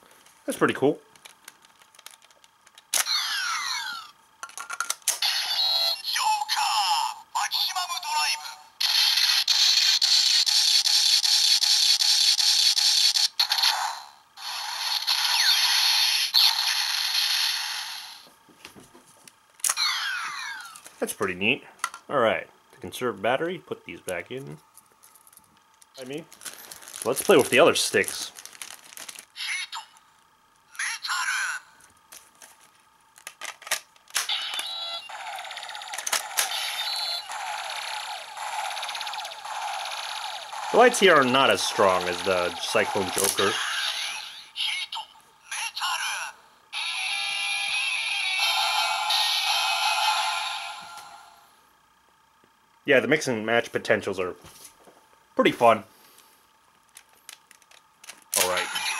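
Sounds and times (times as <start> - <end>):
pulsing crackling buzz: 34.2 - 44.6
toy belt electronic beeps: 34.3 - 44.6.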